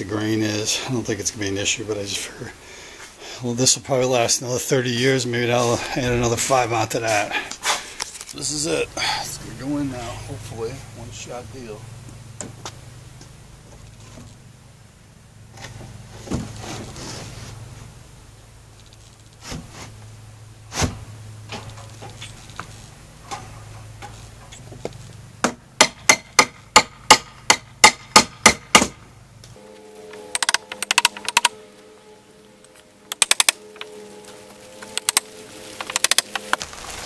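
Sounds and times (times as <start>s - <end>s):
rapid tapping: 34.8s - 36.6s.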